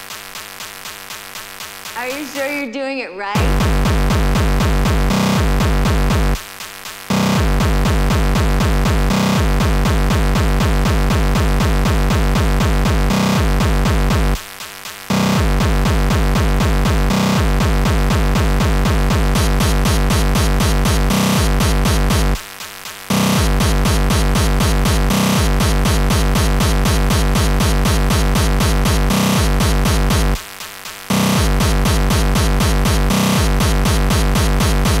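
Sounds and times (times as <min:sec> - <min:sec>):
fast kick-drum beat: 0:00.0 - 0:02.7, 0:03.4 - 0:35.0
synthesizer layers: 0:01.9 - 0:06.4, 0:31.1 - 0:35.0.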